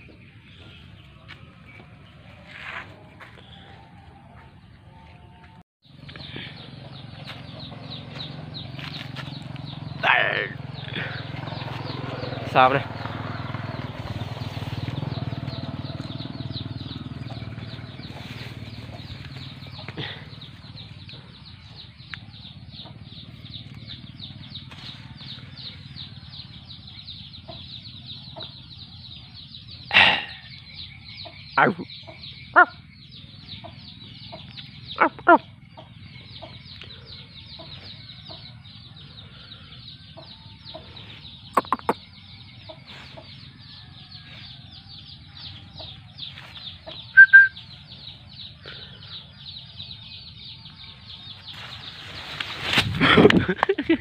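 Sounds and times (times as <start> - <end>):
chorus of rapid high chirps: 44.8 - 51.5.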